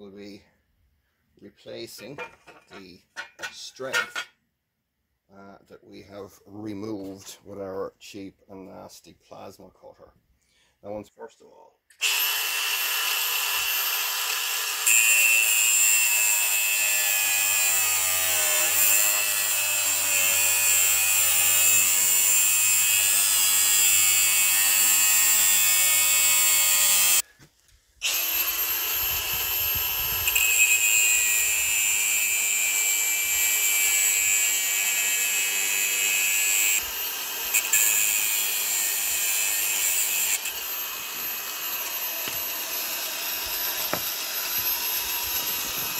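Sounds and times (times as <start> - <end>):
angle grinder cutting steel: 12.0 - 27.2, 28.0 - 45.9.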